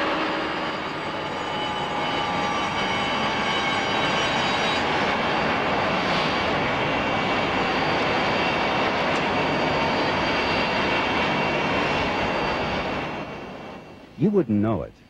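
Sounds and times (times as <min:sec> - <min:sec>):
jet turbine rushing whine: 0:00.0 - 0:15.0.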